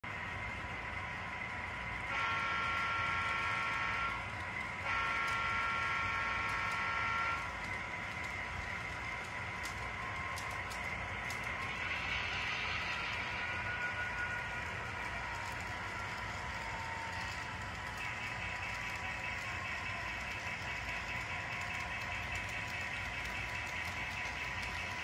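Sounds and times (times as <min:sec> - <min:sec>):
model trains running hum: 0:00.0 - 0:25.0
electronic diesel horn blasts: 0:02.0 - 0:07.6.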